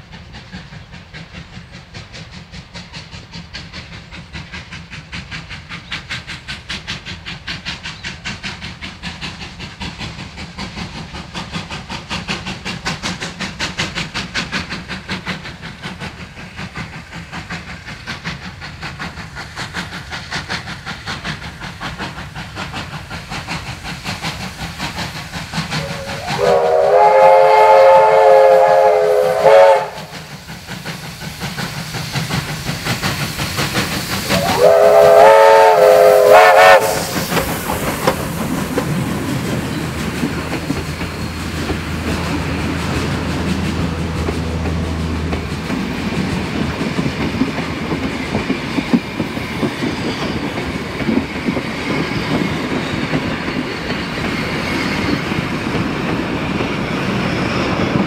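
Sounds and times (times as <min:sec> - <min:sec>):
train carriages rumbling past: 0:00.0 - 0:58.0
steam locomotive whistle: 0:25.7 - 0:30.4, 0:34.2 - 0:37.5
wheels clacking over rail joints: 0:30.1 - 0:58.0.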